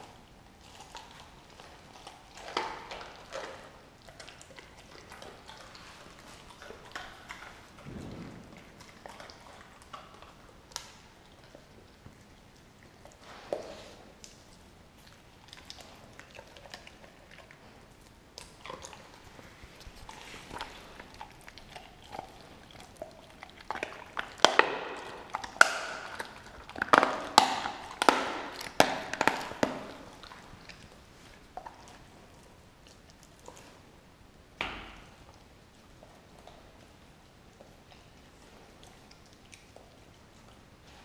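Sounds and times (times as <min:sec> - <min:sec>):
dog licking and chewing: 0:00.0 - 0:41.0
bones crunching and snapping: 0:20.4 - 0:30.8.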